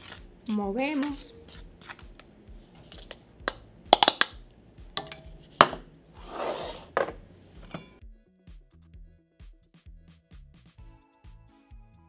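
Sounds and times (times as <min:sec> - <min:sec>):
spoon knocking on metal sieve: 0:02.9 - 0:05.9, 0:06.9 - 0:08.0
scraping rustle: 0:06.2 - 0:07.8.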